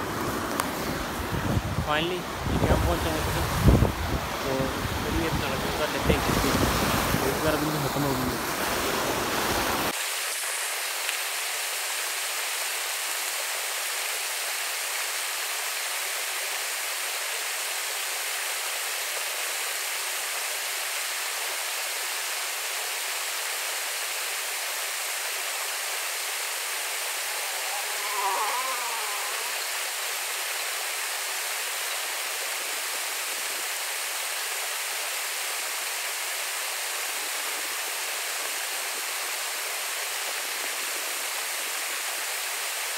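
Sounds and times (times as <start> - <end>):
stream rushing over rocks: 0.0 - 42.9
wind rumble on microphone: 0.9 - 7.4
brief wavering call: 27.2 - 29.8.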